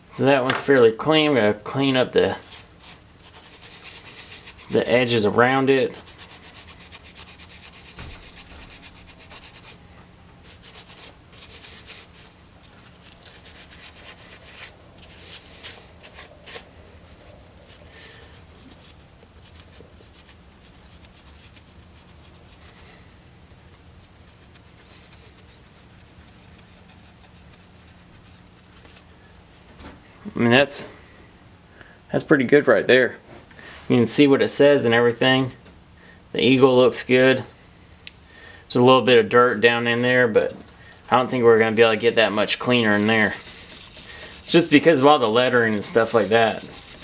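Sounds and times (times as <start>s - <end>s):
faint steady hum: 0.0s - 47.0s
scouring pad scrubbing metal: 41.6s - 47.0s.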